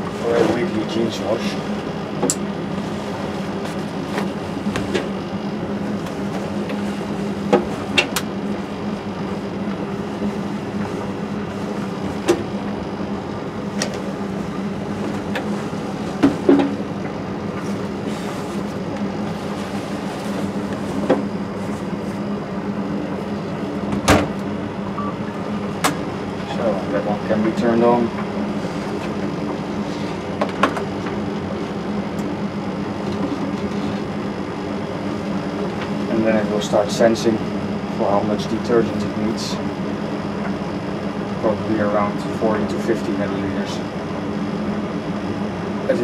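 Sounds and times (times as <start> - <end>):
steady low hum: 0.0 - 46.0
washing machine door shutting: 23.9 - 24.4.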